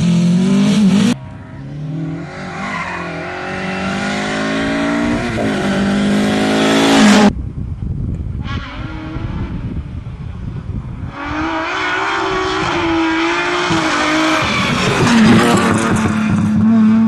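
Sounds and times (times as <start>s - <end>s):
rally car engine accelerating: 11.1s - 17.0s.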